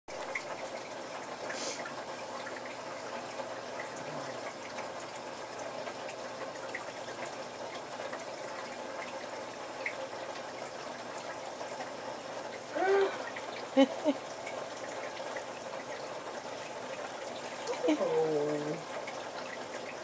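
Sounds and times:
fish tank filter water trickling: 0.1 - 20.0.

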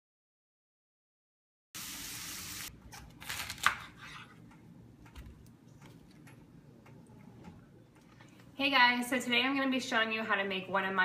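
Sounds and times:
knife cracking through cauliflower: 3.0 - 4.0.

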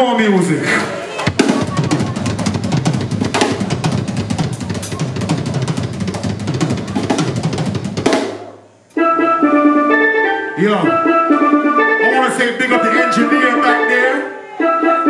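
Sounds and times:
live band music: 0.6 - 15.0
drum kit snare and bass drum: 0.8 - 8.6.

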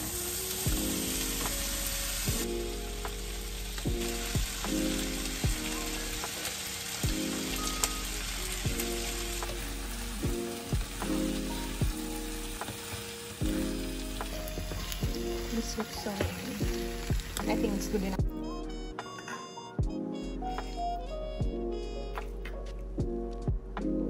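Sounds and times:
food sizzling in a frying pan: 0.0 - 18.2
soft background music with beat: 0.0 - 24.0.

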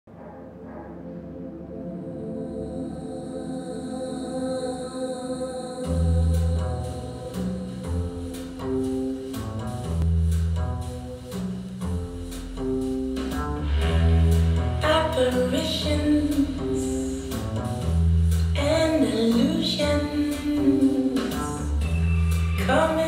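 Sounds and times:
music through speakers: 5.9 - 23.0.

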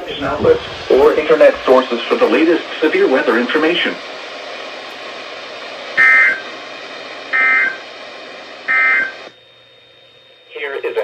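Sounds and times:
steady radio hiss: 0.0 - 11.0
digital data tone bursts: 6.0 - 6.4, 7.3 - 7.8, 8.7 - 9.3.

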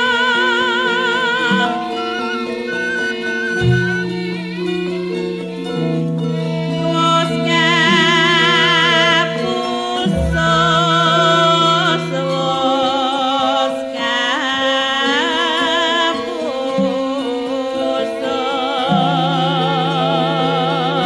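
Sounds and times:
woman singing ornamented melody: 0.0 - 4.3, 6.7 - 21.0
ringing metallophone tones: 1.7 - 4.6.

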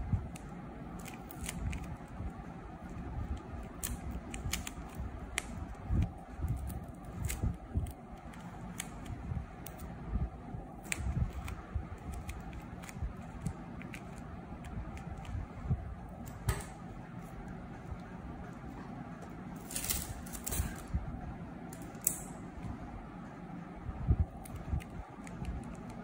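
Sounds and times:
packing tape crinkling: 19.6 - 20.9.

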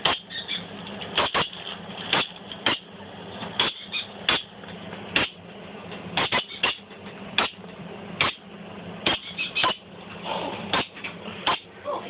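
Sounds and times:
parrot chick begging squawks: 0.0 - 1.6, 3.6 - 4.5, 6.2 - 7.6, 9.0 - 9.9.

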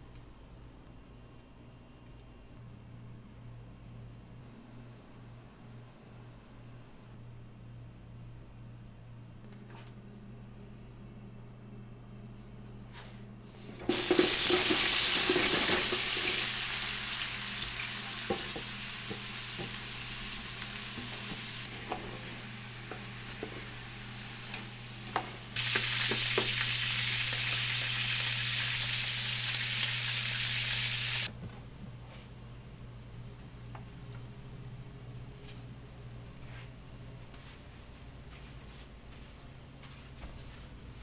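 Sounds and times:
steady low hum: 0.0 - 13.9
vegetables sizzling in hot oil: 13.9 - 31.3.

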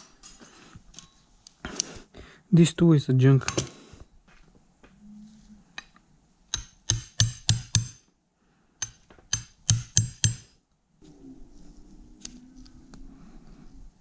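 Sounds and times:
metal tool tapping on metal: 6.5 - 8.0, 8.8 - 10.5.

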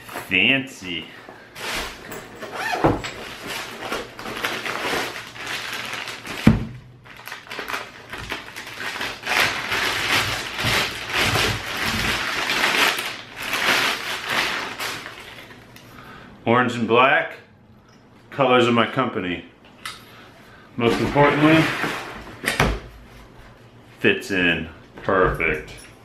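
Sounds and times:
plastic wrapping crinkling: 0.0 - 15.8.

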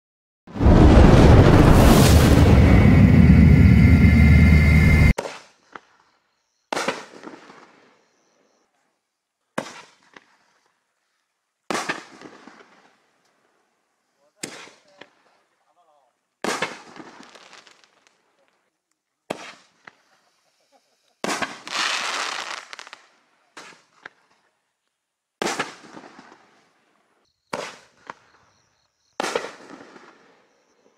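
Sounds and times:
loud intro sound: 0.6 - 5.2
light firework pops: 6.7 - 7.8, 9.6 - 10.5, 11.7 - 12.9, 14.4 - 15.2, 16.4 - 18.6, 19.3 - 20.2, 21.2 - 24.5, 25.4 - 26.6, 27.5 - 28.4, 29.2 - 30.3.

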